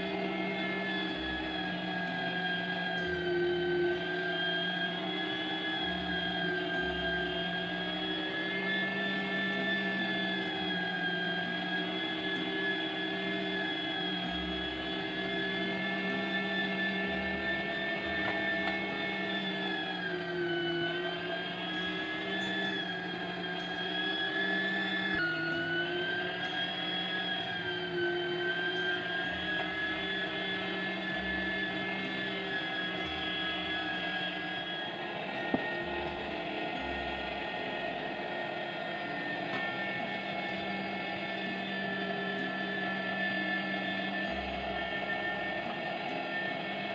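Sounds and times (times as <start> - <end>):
meat grinder motor whining: 0.0 - 46.9.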